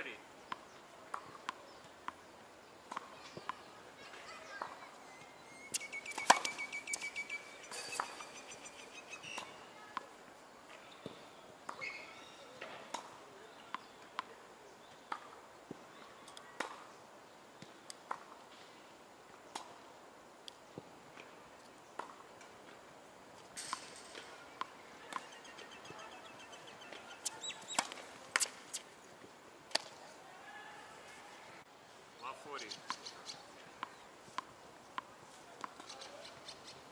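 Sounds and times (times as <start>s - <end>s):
tennis balls struck by rackets: 0.5s - 2.3s, 2.9s - 3.6s, 5.7s - 10.2s, 12.6s - 14.4s, 15.0s - 15.4s, 16.6s - 16.8s, 19.5s - 19.8s, 22.0s - 22.5s, 23.6s - 26.0s, 26.9s - 28.9s, 29.7s - 30.0s, 33.8s - 36.2s.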